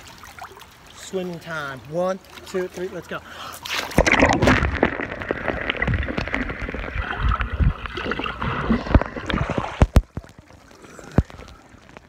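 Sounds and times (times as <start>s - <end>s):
underwater bubbling and churning: 2.2s - 12.0s
underwater knocks and thumps: 4.0s - 10.5s.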